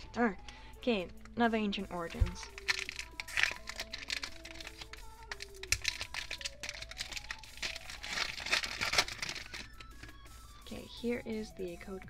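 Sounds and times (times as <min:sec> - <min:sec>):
foil wrapper crinkling and tearing: 0:02.4 - 0:10.4.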